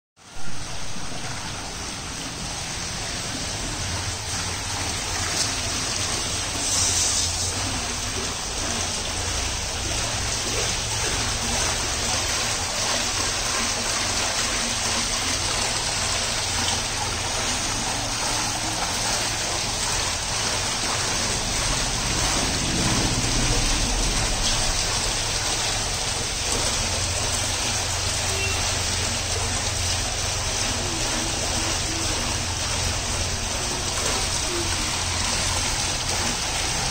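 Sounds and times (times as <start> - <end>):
water spilling over ledge: 0.2 - 36.9
low rumble: 20.9 - 26.2.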